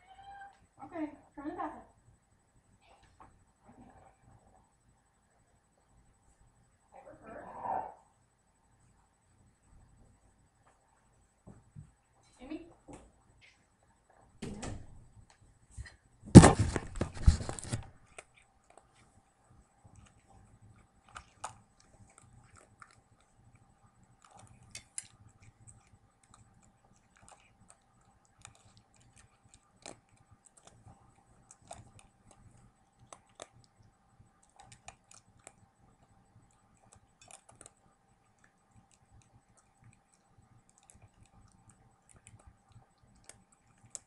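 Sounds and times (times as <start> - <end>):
cat crunching dry kibble: 16.4 - 44.0.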